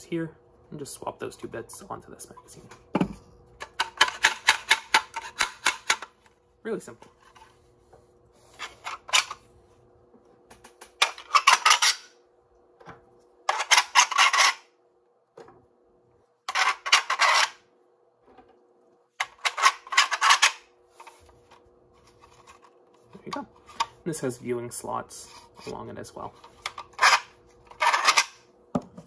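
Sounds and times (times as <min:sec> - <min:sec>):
plastic parts clicking and rattling: 0:03.6 - 0:06.3, 0:10.6 - 0:12.0, 0:16.5 - 0:17.6, 0:19.2 - 0:21.6, 0:26.4 - 0:28.4.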